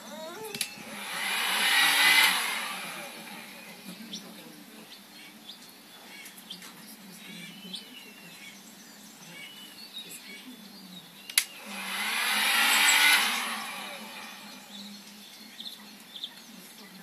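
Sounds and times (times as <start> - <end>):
birds chirping faintly: 0.0 - 17.0
heat gun blowing hiss: 0.8 - 3.7, 11.4 - 14.8
sharp click: 11.3 - 11.6.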